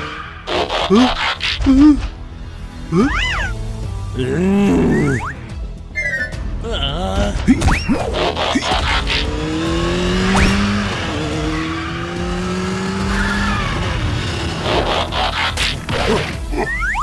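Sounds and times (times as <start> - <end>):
engine revving: 7.9 - 16.5.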